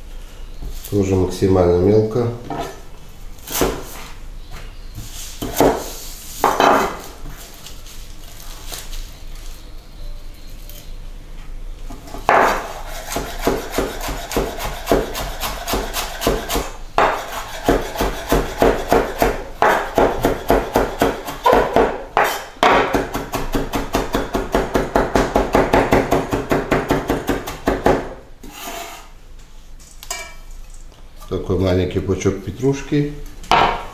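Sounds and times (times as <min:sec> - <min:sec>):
knife chopping on wooden board: 0:03.5 - 0:04.0, 0:05.4 - 0:07.0, 0:12.3 - 0:28.2.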